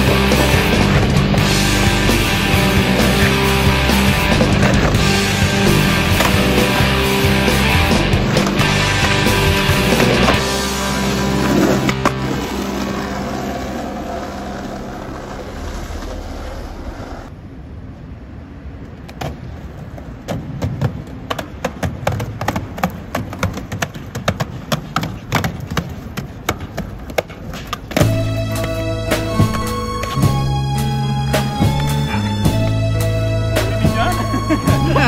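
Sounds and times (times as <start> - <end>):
skateboard rolling: 0.0 - 17.4, 18.7 - 35.0
skateboard clicks and knocks: 5.7 - 6.7, 19.0 - 28.8.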